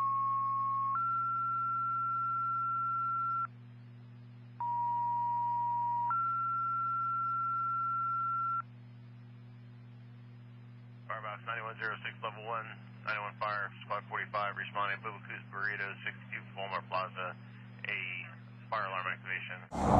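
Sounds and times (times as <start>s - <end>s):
steady low hum: 0.1s - 4.9s, 6.2s - 19.9s
two-tone pager tones over radio: 4.6s - 8.6s.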